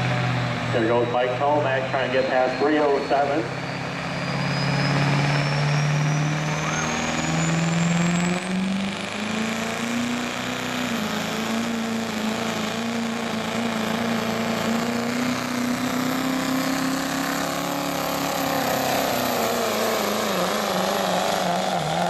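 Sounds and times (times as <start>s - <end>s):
diesel truck engine at high revs: 0.0s - 22.0s.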